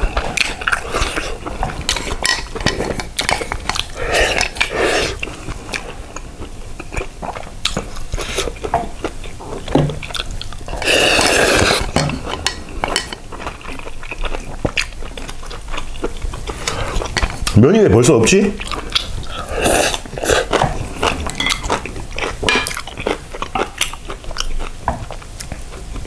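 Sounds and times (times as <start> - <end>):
chewing noodles: 0.0 - 17.6, 18.6 - 26.0
slurping noodles: 3.8 - 5.9, 10.7 - 12.0, 19.3 - 21.3.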